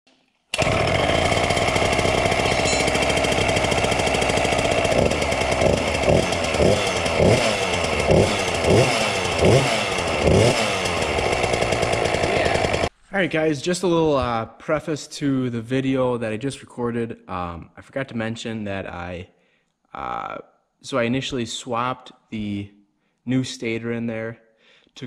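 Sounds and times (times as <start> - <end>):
dirt bike engine revving: 0.6 - 12.9.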